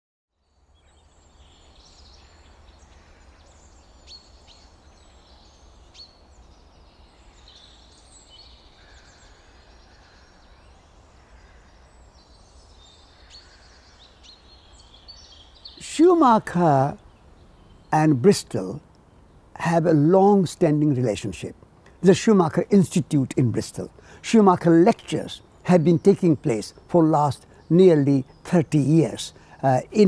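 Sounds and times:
small birds chirping: 0:00.4 - 0:30.0.

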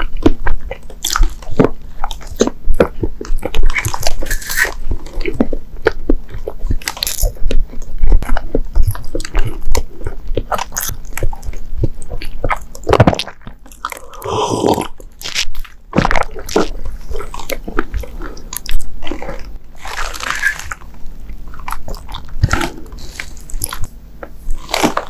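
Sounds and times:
close chewing with wet mouth clicks: 0:00.0 - 0:25.0
swallow: 0:13.0 - 0:15.4.

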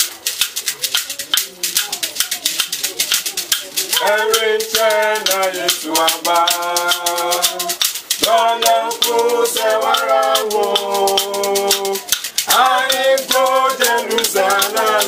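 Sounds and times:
hand rattles shaken: 0:00.0 - 0:15.0
group singing: 0:03.8 - 0:15.0.

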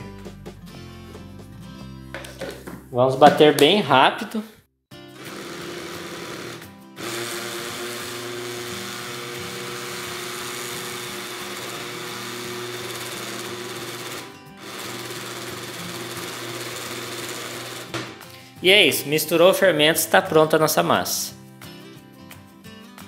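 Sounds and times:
blender motor running: 0:05.1 - 0:18.0.

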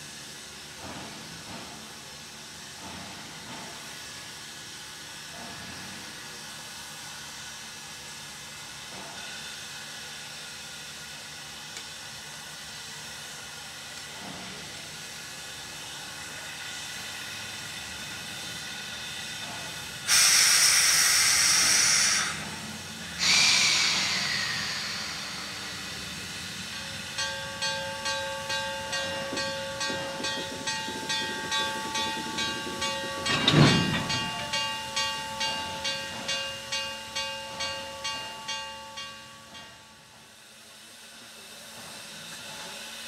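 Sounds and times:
loud bursts of steam hissing: 0:00.0 - 0:30.0
steam locomotive low hiss: 0:00.0 - 0:43.0.

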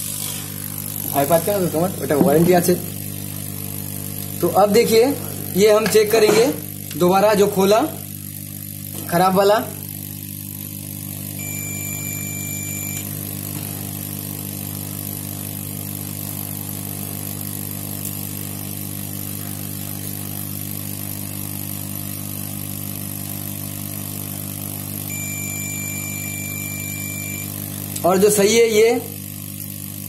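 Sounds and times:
steady machine hum: 0:00.0 - 0:30.0
multimeter continuity beep: 0:11.4 - 0:13.2, 0:25.1 - 0:27.7.

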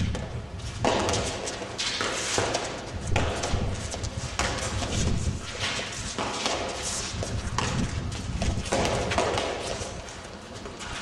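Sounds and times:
scuffing footsteps on court floor: 0:00.0 - 0:11.0
ball smacking off gloves and walls: 0:00.1 - 0:03.7, 0:06.2 - 0:10.0.

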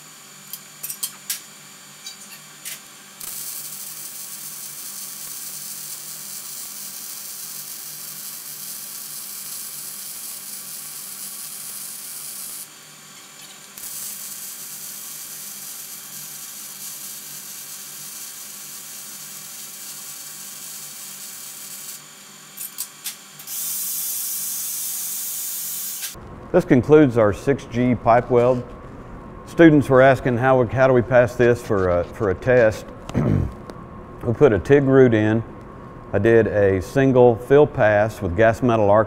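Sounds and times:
welding arc crackling: 0:02.2 - 0:26.2.

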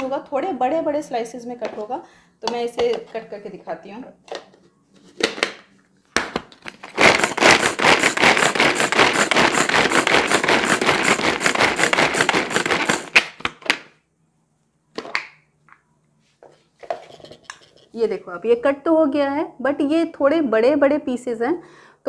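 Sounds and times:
vegetable chopper blades rattling: 0:07.0 - 0:13.2.

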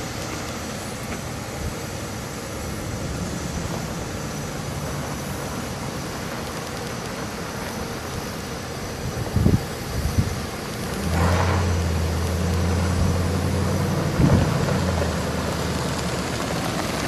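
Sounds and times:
outdoor noise hiss: 0:00.0 - 0:17.0
truck engine running: 0:10.6 - 0:17.0.

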